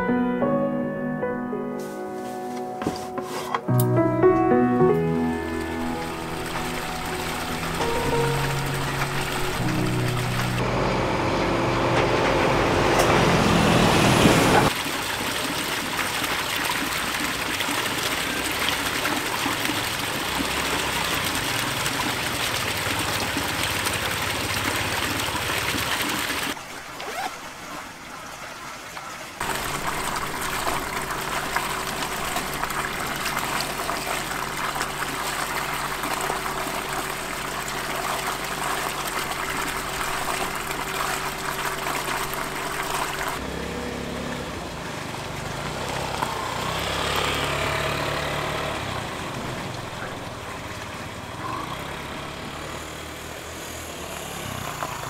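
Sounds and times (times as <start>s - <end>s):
low hum: 5.0s - 14.7s
water splashing into basin: 14.7s - 43.5s.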